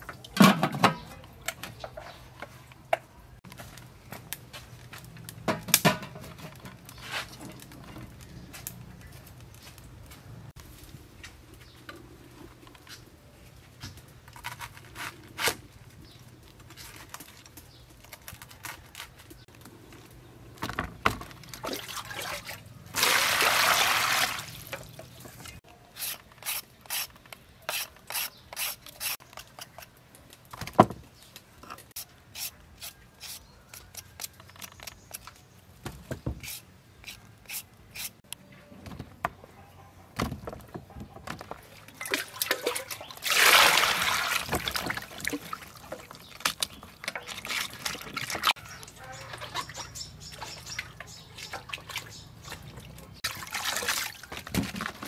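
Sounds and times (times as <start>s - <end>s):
peeler scraping a carrot: 25.8s - 30.0s, 31.9s - 35.4s, 36.3s - 38.2s
limes dropping into water: 41.9s - 46.7s.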